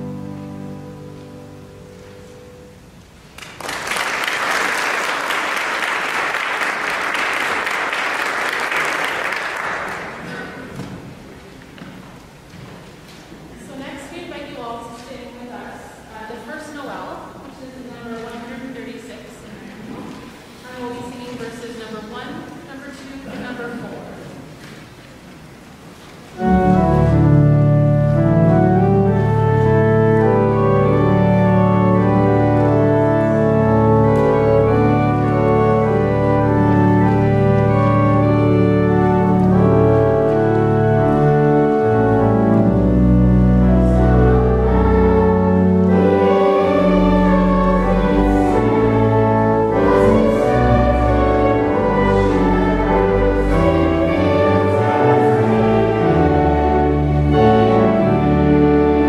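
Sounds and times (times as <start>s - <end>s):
church organ chords: 0.0s - 3.3s, 26.4s - 59.0s
girls' choir singing: 43.7s - 57.9s.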